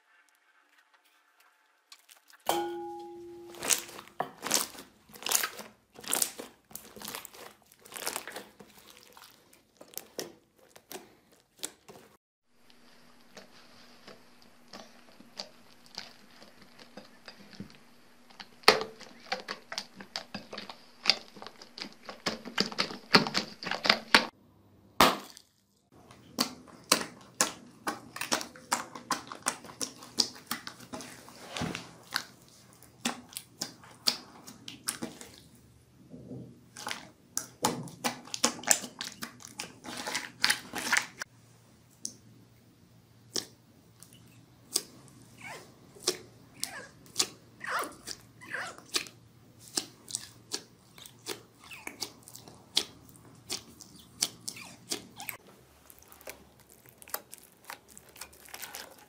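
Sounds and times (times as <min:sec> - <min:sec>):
hands squishing slime: 0:02.0 - 0:12.2, 0:13.2 - 0:24.3, 0:25.0 - 0:35.7, 0:36.6 - 0:41.3, 0:43.1 - 0:59.0.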